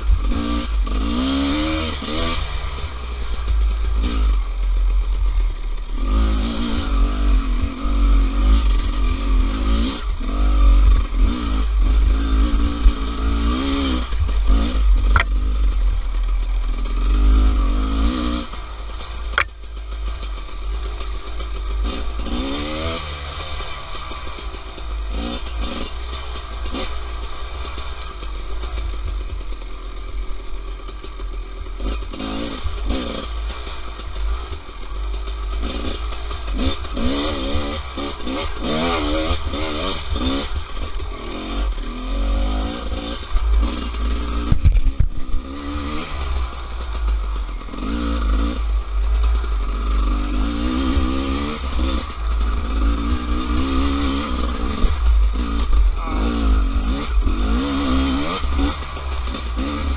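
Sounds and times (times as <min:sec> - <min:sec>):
dirt bike engine revving: 0:00.0 - 0:59.9
heavy low rumble: 0:10.0 - 0:17.6, 0:40.6 - 0:47.7, 0:50.9 - 0:59.9.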